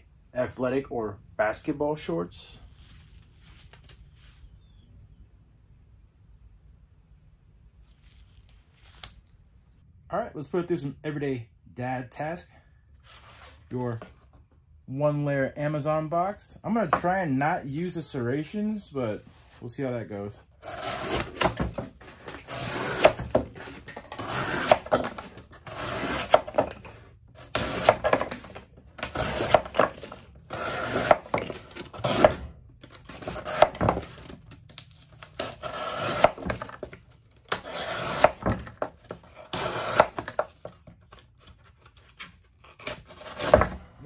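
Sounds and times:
knife slicing cardboard: 20.6 - 34.5, 35.2 - 43.9.

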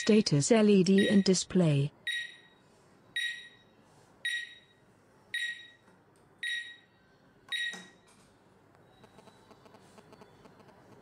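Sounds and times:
alarm panel high beeps: 1.0 - 1.4, 2.1 - 2.6, 3.2 - 3.6, 4.3 - 4.8, 6.4 - 6.8.

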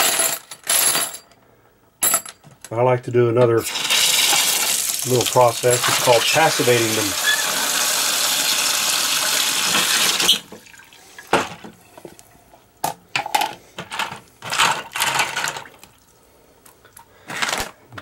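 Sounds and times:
tap water running into pot: 3.6 - 11.6.

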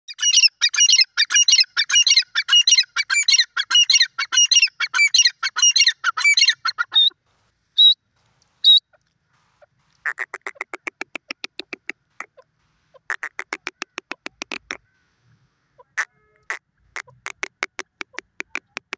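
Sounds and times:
bird calling repeated notes: 0.1 - 7.2, 7.8 - 8.0, 8.6 - 9.0, 10.0 - 15.2, 15.8 - 18.9
rapid clicking bird notes: 10.0 - 14.8, 16.0 - 18.9.

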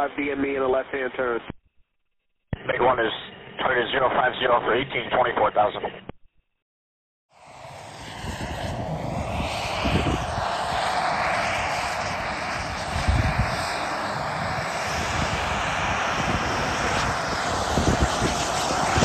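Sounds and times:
model jet turbine running: 7.4 - 19.0.

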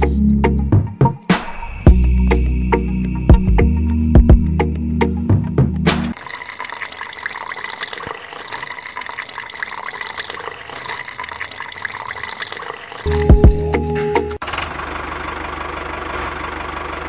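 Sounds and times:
background music with drums: 0.0 - 2.5, 3.3 - 6.1, 13.1 - 14.4
water trickling into plastic jar: 6.2 - 13.2.

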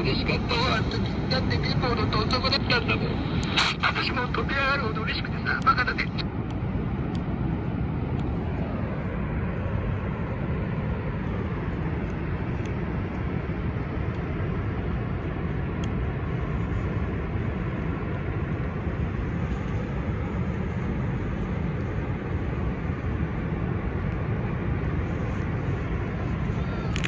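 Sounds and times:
radio static: 0.0 - 6.3
faint crackles: 25.0 - 27.0.

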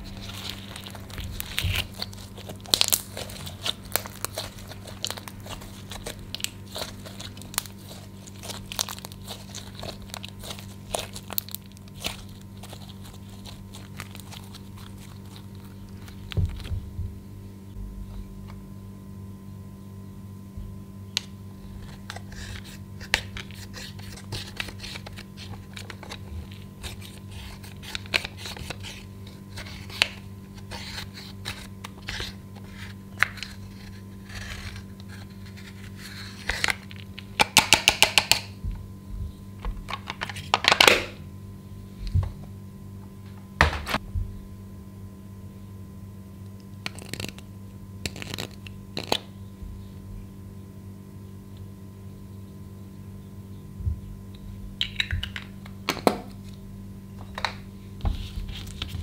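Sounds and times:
steady low hum: 0.0 - 59.0
stick scraping powder makeup: 0.1 - 16.7, 21.8 - 38.2.

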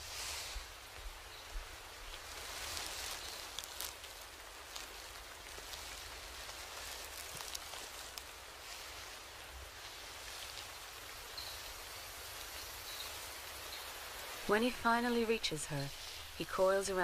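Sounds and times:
soft steady patter: 0.0 - 17.0
faint ticks: 2.1 - 8.4.

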